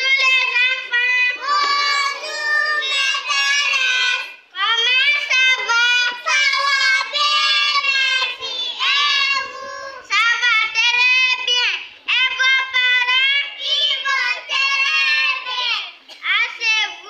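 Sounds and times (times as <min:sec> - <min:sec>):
child singing into a microphone: 0:00.0 - 0:10.2.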